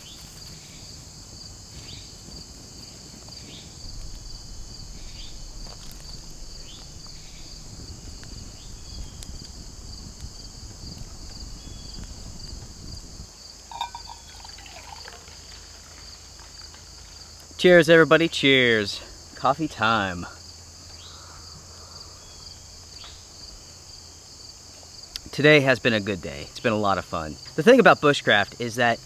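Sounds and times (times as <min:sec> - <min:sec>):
insect chorus buzzing: 0:00.0 - 0:29.0
low rumble: 0:03.6 - 0:13.3
coffee pouring into metal cup: 0:13.7 - 0:16.1.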